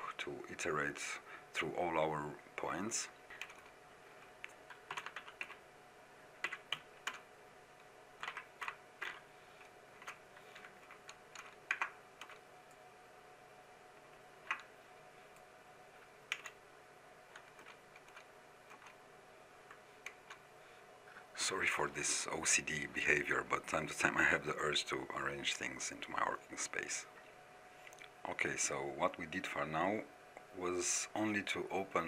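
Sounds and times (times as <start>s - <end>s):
computer keyboard typing: 3.4s - 3.7s, 4.4s - 5.6s, 6.4s - 7.3s, 8.2s - 12.4s, 14.4s - 14.7s, 16.3s - 16.6s, 17.3s - 19.0s, 19.7s - 20.4s.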